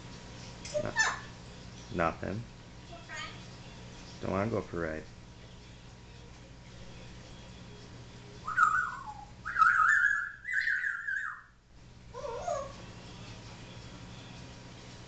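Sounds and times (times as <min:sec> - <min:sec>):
parrot whistling: 0:08.4 - 0:12.8.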